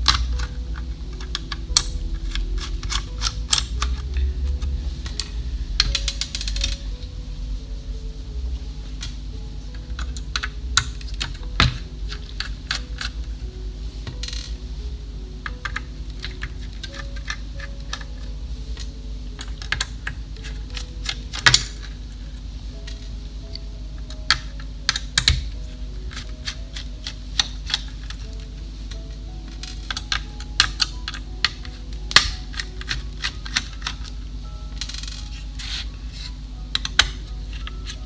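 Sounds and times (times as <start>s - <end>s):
screwdriver and screws clicking: 0.0s - 6.8s, 9.9s - 13.3s, 15.4s - 22.1s, 24.0s - 34.2s, 34.8s - 38.0s.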